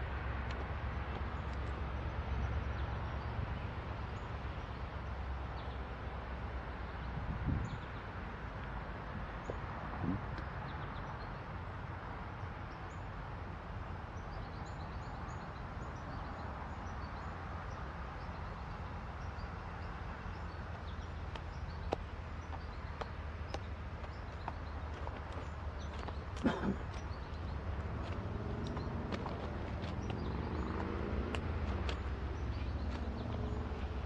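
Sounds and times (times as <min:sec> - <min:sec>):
small birds chirping: 0:09.3 - 0:34.0.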